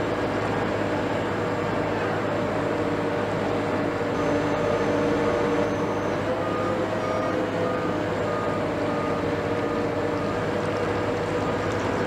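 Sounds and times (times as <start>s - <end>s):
low engine drone: 0.0s - 12.0s
warning beeper short beeps: 4.2s - 8.0s.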